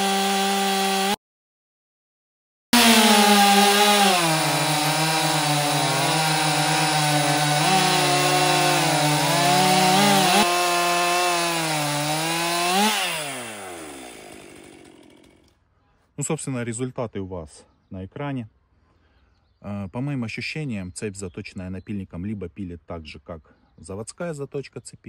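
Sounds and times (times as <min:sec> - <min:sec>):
chainsaw cutting log: 0:00.0 - 0:01.2, 0:02.8 - 0:15.6.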